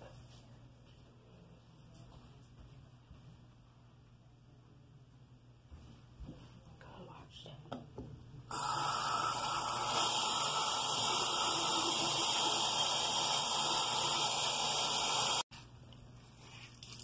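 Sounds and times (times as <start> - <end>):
water running from sink tap: 8.5 - 15.4.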